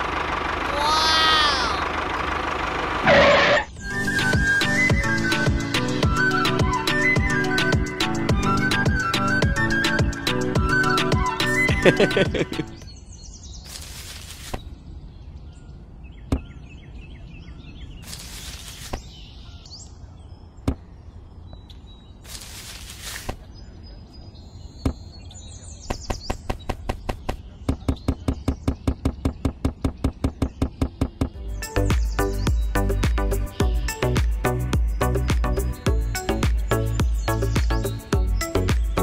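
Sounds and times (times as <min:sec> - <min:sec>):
fast regular tapping: 0:25.9 - 0:31.4.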